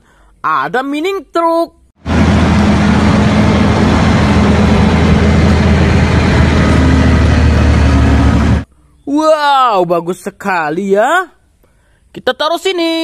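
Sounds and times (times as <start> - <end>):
truck diesel engine drone: 2.0 - 8.7.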